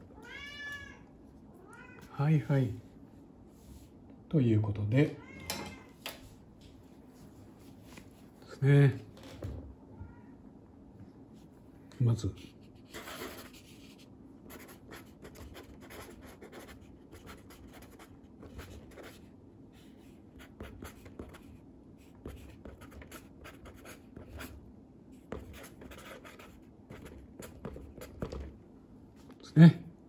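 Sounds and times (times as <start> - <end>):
pencil scratching on paper: 12.4 - 19.3, 20.4 - 24.6, 25.2 - 28.4.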